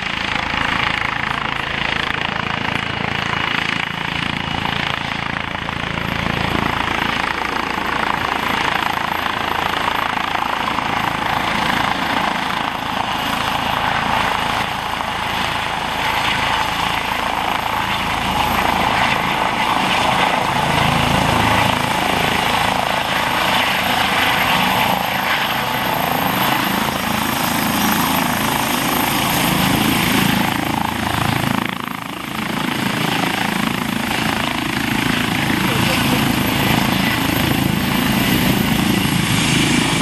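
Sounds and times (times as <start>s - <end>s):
helicopter hovering: 0.0s - 40.0s.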